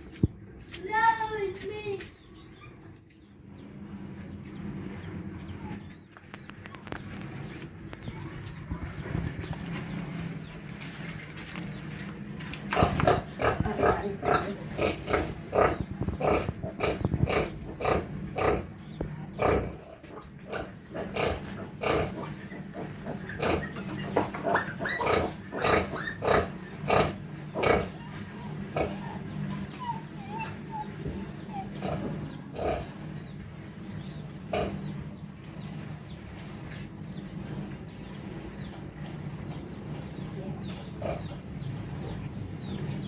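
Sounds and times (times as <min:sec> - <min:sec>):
piglets and sow grunting: 0:12.5 - 0:43.0.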